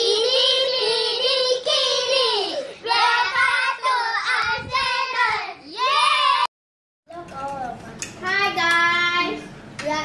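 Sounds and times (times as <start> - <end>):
children singing: 0.0 - 6.3.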